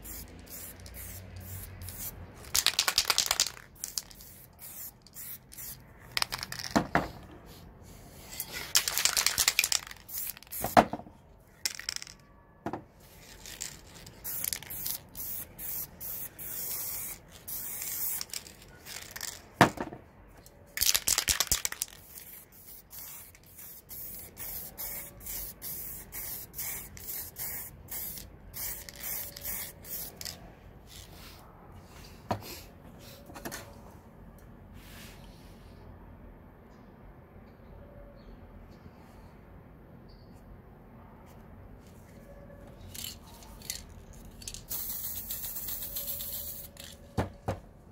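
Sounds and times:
spray paint cans hissing: 0.0 - 10.9, 13.0 - 19.7, 20.8 - 31.2, 42.9 - 47.0.

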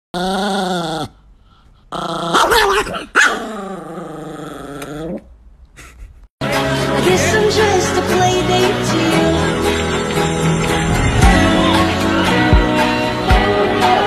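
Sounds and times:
small dog growling: 1.9 - 5.3
small dog yapping: 2.2 - 3.5.

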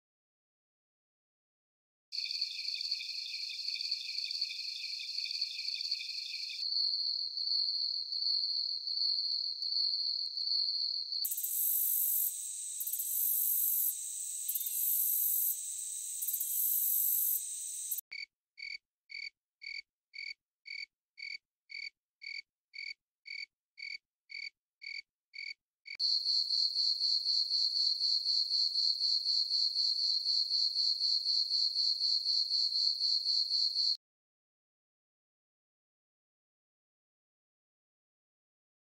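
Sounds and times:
crickets chirping: 2.2 - 18.0, 26.0 - 34.0
high cricket trill: 2.2 - 18.0, 26.0 - 34.0
high-pitched buzzing hiss: 11.3 - 18.0.

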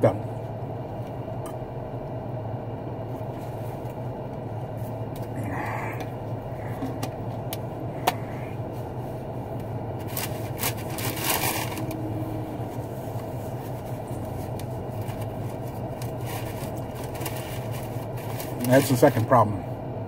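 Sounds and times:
car engine hum in cabin: 0.0 - 20.0
rustle of handling: 8.7 - 19.3.

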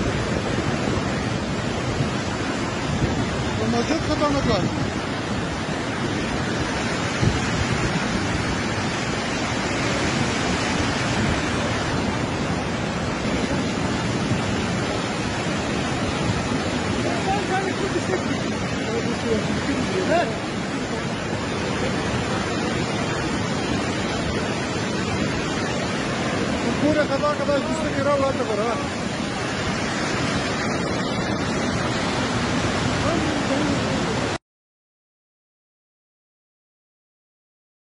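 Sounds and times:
floodwater rushing: 0.0 - 34.4.

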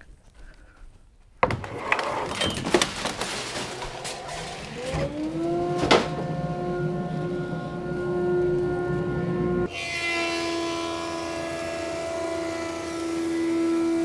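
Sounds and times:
woodshop machine motor whine: 3.4 - 14.0.

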